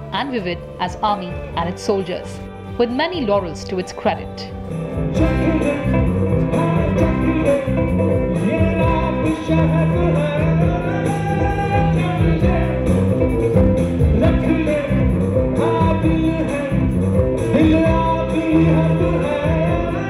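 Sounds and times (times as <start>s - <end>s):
band playing lively tune: 4.2s - 20.0s.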